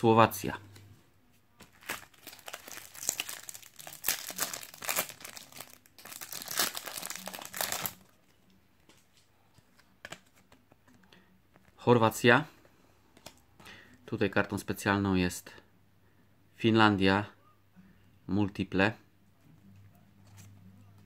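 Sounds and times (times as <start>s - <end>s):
foil packet crinkling and tearing: 1.7s - 8.1s.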